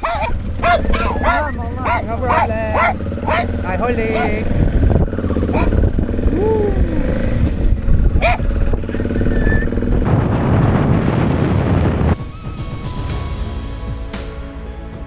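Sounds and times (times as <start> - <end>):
wind rushing: 0.0 - 13.4
motorcycle running: 0.0 - 14.2
background music: 12.2 - 15.0.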